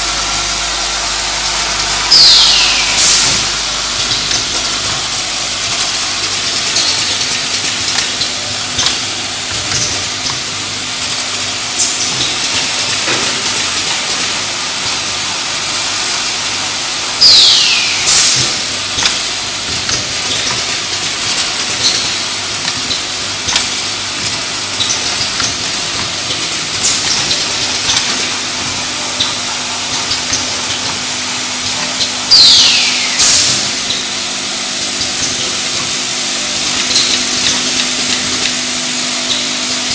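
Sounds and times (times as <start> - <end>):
falling whistle and hissing blast: 0.0 - 4.8, 17.2 - 18.7, 32.3 - 34.0
machinery steady high hiss: 0.0 - 8.3, 11.4 - 30.0, 32.2 - 39.9
machinery clicks and knocks: 3.0 - 15.1, 18.2 - 32.2, 33.4 - 39.9.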